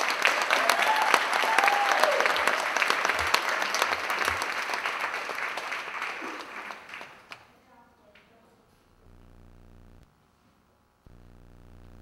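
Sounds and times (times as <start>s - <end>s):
audience applause: 0.0s - 7.4s.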